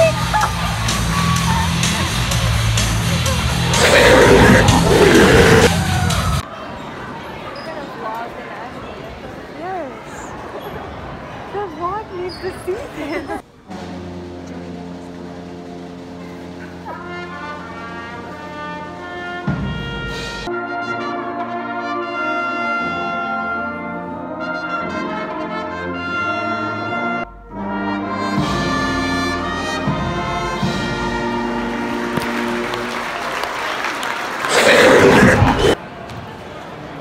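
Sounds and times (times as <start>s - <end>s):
brass band playing slow tune: 13.7s - 33.5s
applause: 31.6s - 35.6s.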